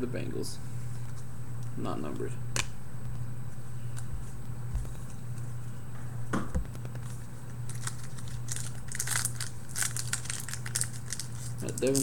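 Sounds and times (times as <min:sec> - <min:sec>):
foil pack crinkling: 0:07.0 - 0:12.0.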